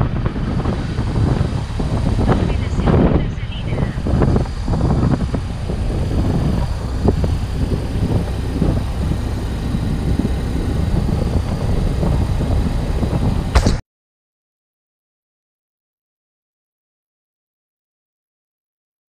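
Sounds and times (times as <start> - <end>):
motorcycle engine rumble: 0.0 - 13.8.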